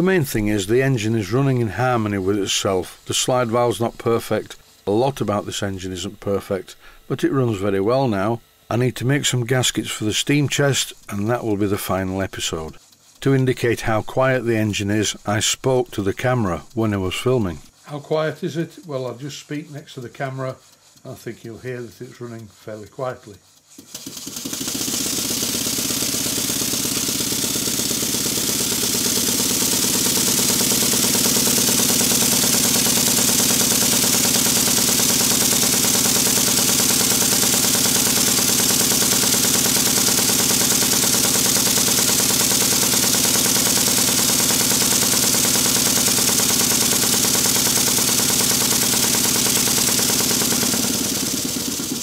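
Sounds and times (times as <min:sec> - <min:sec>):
hiss of exhausting air: 0:00.0 - 0:07.8, 0:20.4 - 0:52.0
rapid beat of model engine piston: 0:00.0 - 0:52.0.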